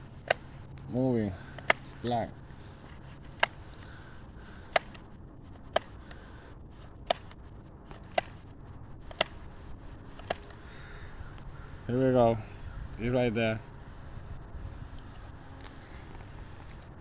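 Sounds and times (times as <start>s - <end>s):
trimmer spool clicking: 0.2s - 0.9s, 2.8s - 5.0s, 5.7s - 6.3s, 6.9s - 8.4s, 9.0s - 9.4s, 10.1s - 10.6s.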